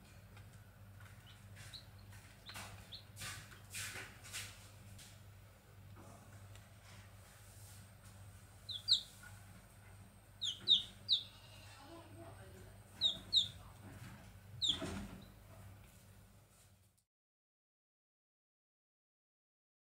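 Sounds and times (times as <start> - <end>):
faint low hum: 0.0 - 17.0
chicks peeping: 1.0 - 4.0, 8.5 - 15.4.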